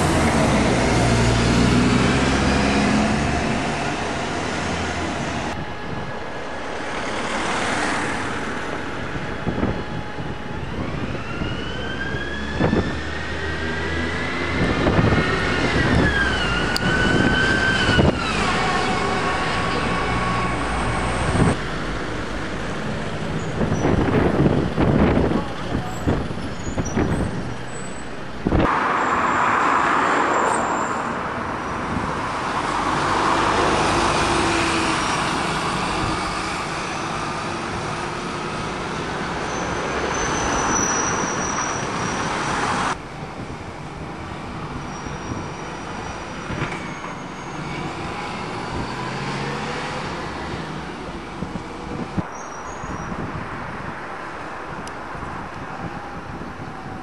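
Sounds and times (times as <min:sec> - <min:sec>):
diesel bus engines: 0:00.0 - 0:57.0
road traffic passing: 0:00.0 - 0:57.0.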